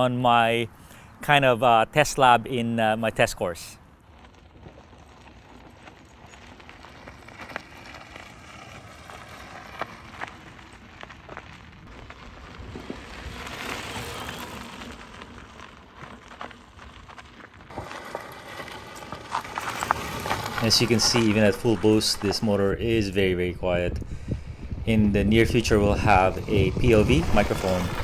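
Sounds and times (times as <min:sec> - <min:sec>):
tyres crunching on dirt: 0:02.2 - 0:23.5, 0:25.3 - 0:28.0
faint electric motor whine: 0:06.8 - 0:16.9.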